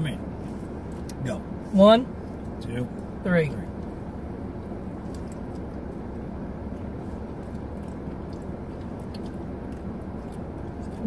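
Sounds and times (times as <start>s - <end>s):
people chewing candy: 6.7s - 11.0s.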